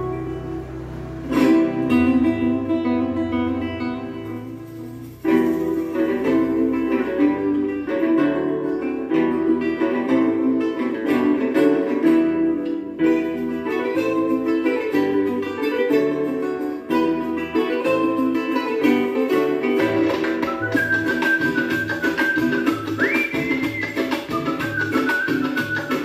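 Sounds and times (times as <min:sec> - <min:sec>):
bass line: 0:00.0 - 0:07.6
picked acoustic guitar: 0:00.0 - 0:26.0.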